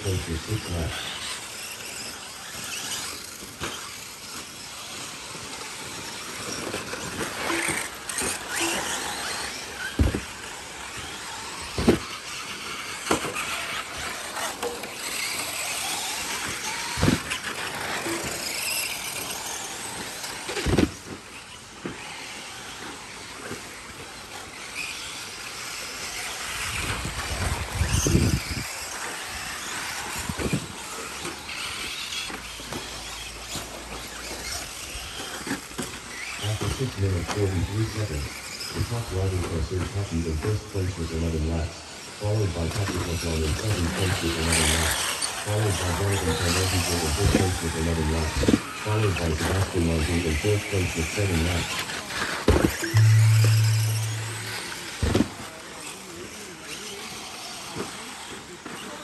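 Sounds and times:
tyres on loose dirt: 0.0 - 40.4
radio-controlled car motors: 0.0 - 59.0.

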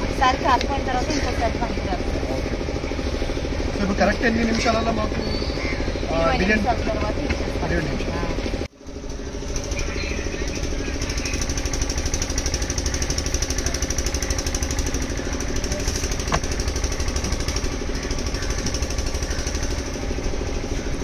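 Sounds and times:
small engine idling: 0.0 - 21.0.

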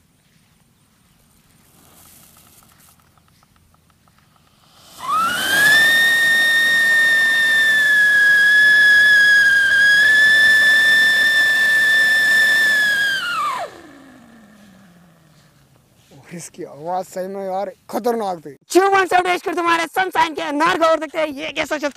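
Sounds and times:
firework whistling: 4.5 - 15.0.

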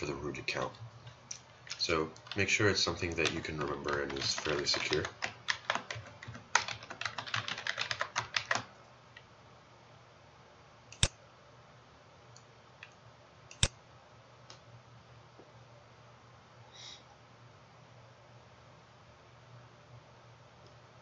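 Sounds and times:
rapid typing on keyboard: 0.0 - 8.8
computer mouse clicks: 10.9 - 11.1, 12.4 - 13.8.

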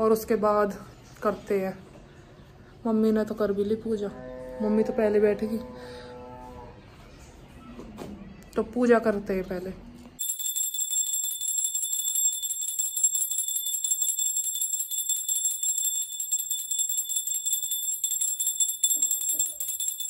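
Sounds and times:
bell rung rapidly: 10.2 - 20.0.

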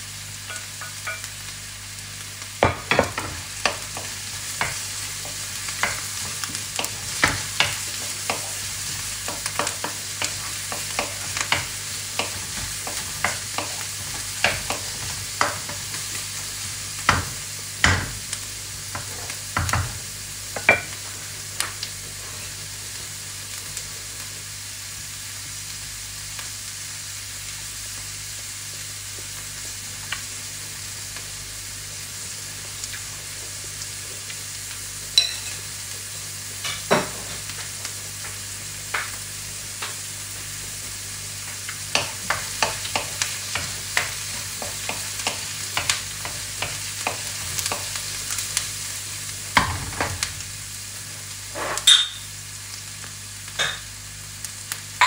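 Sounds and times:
vegetables sizzling in hot oil: 0.0 - 55.0
wooden spoon scraping a wok: 3.1 - 16.3, 51.4 - 51.9.

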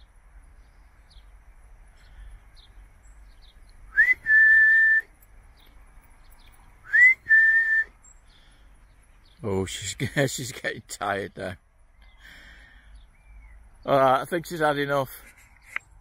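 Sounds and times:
faint bird chirps: 0.0 - 16.0
person whistling: 3.9 - 5.1, 6.8 - 7.9.

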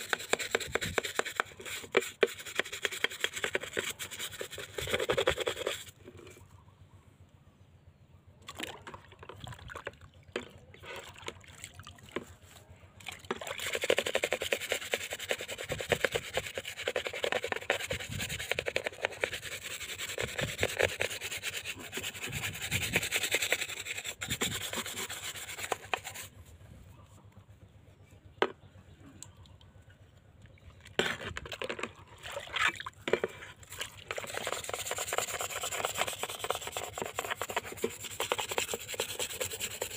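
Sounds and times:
bristle brush scrubbing metal: 0.0 - 6.4, 13.5 - 26.3, 33.1 - 39.9.

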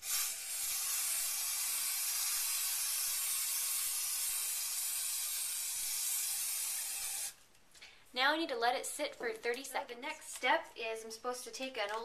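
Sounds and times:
aerosol can spraying: 0.0 - 7.4.

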